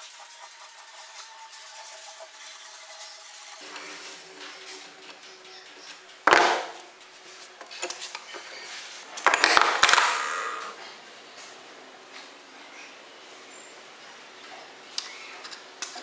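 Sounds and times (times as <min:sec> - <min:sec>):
tools rattling: 0:09.2 - 0:10.2.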